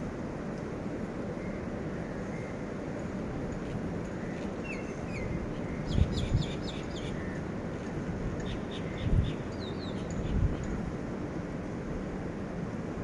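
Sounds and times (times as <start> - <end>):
gusty wind on microphone: 5.1 - 7.3, 8.0 - 11.1
wind buffeting microphone thumps: 5.4 - 6.9, 8.1 - 9.5
bird chirping: 8.4 - 10.7.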